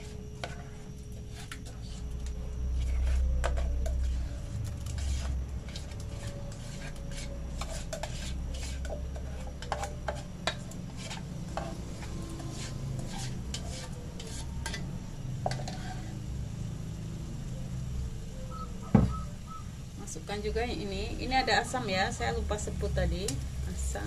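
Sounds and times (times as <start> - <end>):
spoon scraping metal bowl: 0.0 - 16.1
low steady hum: 0.0 - 24.0.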